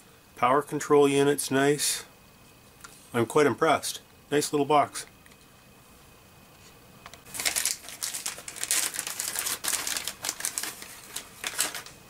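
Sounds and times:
plastic bag crinkling: 7.3 - 12.0.

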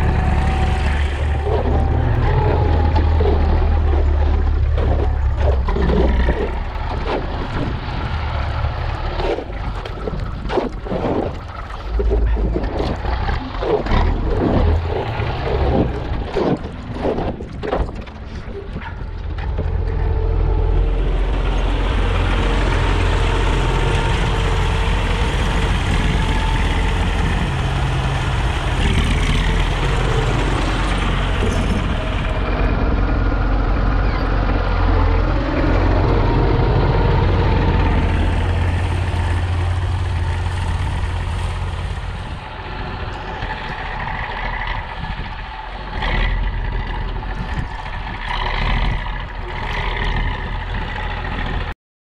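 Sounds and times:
tractor diesel engine running: 0.0 - 51.8.

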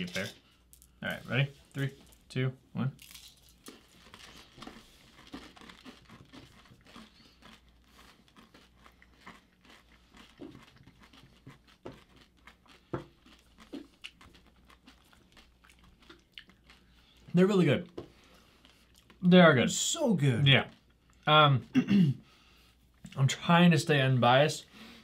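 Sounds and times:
crunching and chewing candy: 3.0 - 17.4.

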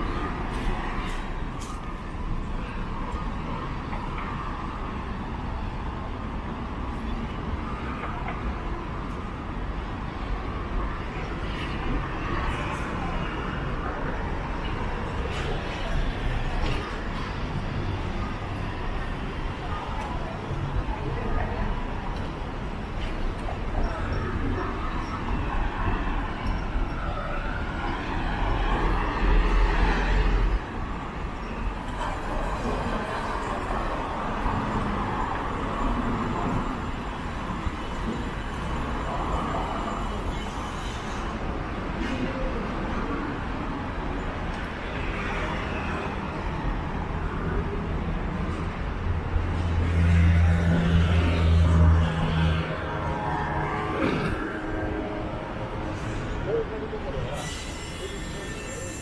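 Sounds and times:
low urban rumble: 0.0 - 59.0.

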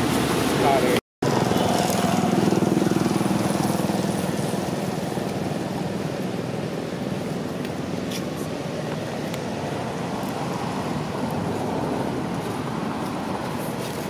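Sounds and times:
engine running with low hum: 0.0 - 14.0.

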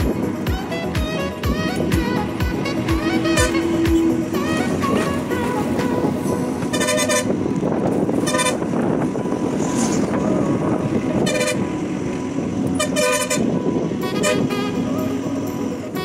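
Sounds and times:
bus rumbling: 0.0 - 16.0
vehicle horn honking: 0.8 - 7.4, 8.2 - 8.7, 11.2 - 11.8, 12.7 - 15.2.

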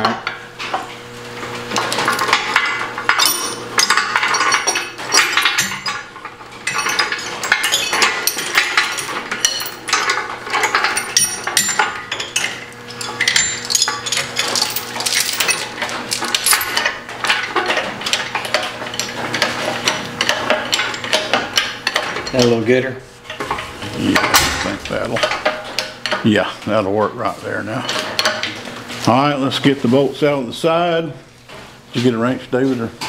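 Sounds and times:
steel chain clinking and rattling: 1.9 - 19.5.

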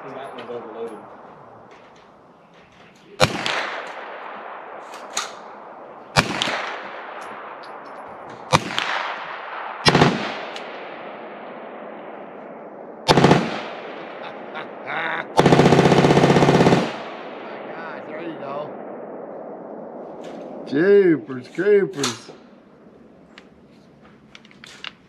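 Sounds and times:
rifle single shots with echo: 3.2 - 14.8, 15.4 - 17.8, 18.4 - 20.7, 21.9 - 23.6
rapid burst of gunfire: 9.8 - 10.6, 13.1 - 14.4, 15.4 - 17.4.

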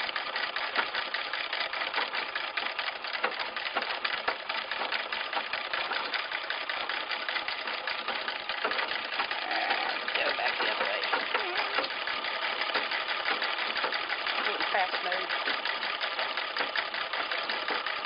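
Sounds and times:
treadle sewing machine clatter: 0.0 - 18.0.

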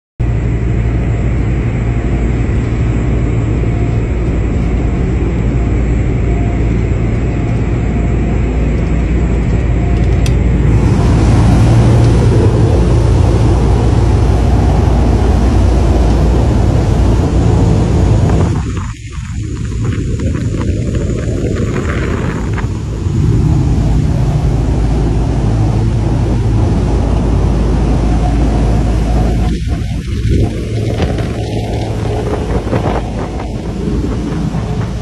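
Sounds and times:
boat engines droning: 0.2 - 35.0
rushing wind and water: 0.2 - 35.0.

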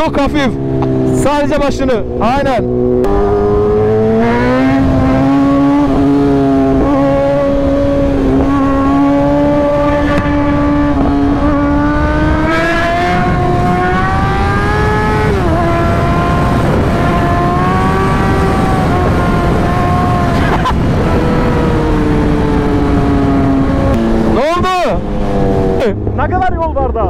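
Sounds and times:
motorcycle engine at high revs: 0.0 - 26.4
wind rush: 0.0 - 26.7.

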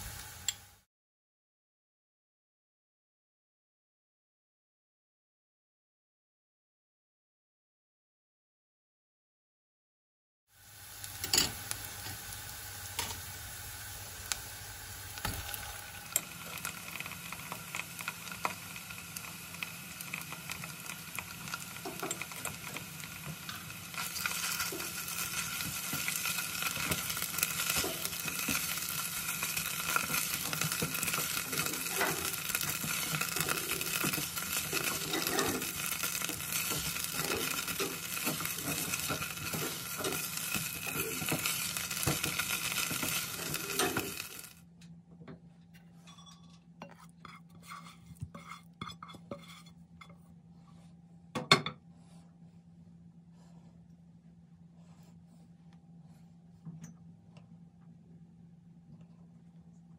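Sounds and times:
onions sizzling in oil: 0.0 - 0.8, 10.5 - 44.6
spatula scraping pan: 21.2 - 44.5, 46.8 - 50.8.

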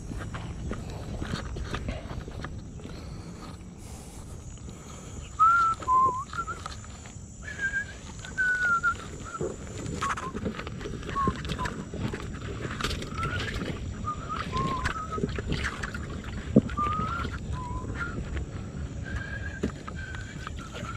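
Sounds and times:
scuffing footsteps: 0.0 - 14.0
short whistled notes: 5.4 - 6.8, 7.4 - 10.4, 11.1 - 11.8, 13.0 - 15.9.

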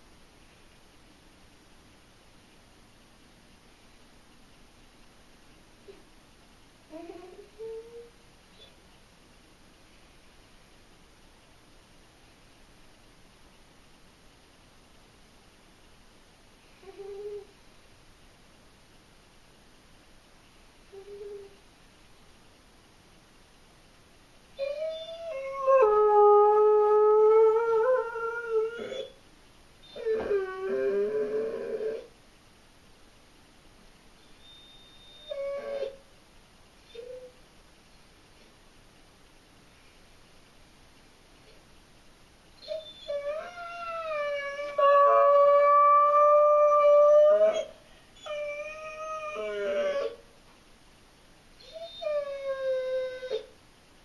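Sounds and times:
dog howling: 29.9 - 32.1, 35.1 - 36.0, 42.6 - 50.2, 51.6 - 53.5.

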